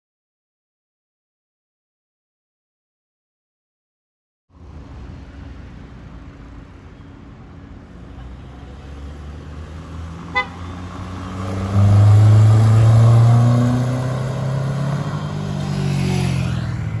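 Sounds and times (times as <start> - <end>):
car engine accelerating past: 8.9 - 17.0
car horn toot: 10.3 - 10.8.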